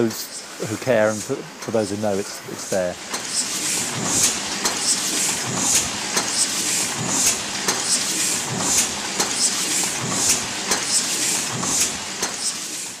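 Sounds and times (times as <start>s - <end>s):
printing press hissing puffs: 0.0s - 13.0s
printing press clattering: 0.6s - 13.0s.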